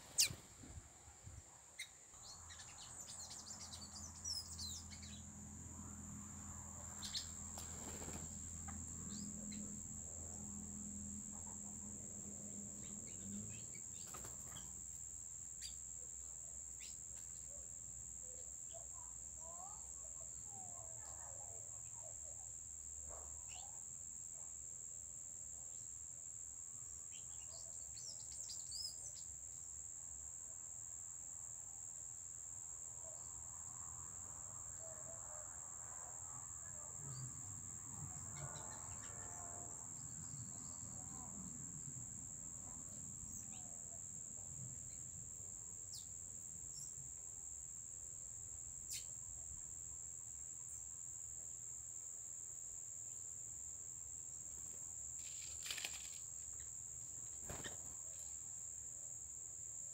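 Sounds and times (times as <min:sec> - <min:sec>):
insects droning: 0:00.0 - 0:59.9
bird chirps: 0:01.8 - 0:05.3, 0:06.9 - 0:08.2.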